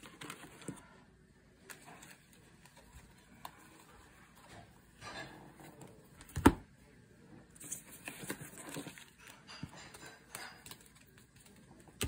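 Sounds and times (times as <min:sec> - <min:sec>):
cards in plastic holders rustling: 0:00.0 - 0:04.8, 0:07.5 - 0:12.0.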